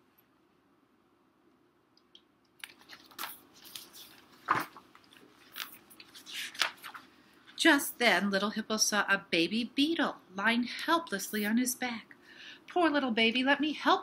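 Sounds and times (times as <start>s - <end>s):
book pages rustling: 2.6s - 7.2s.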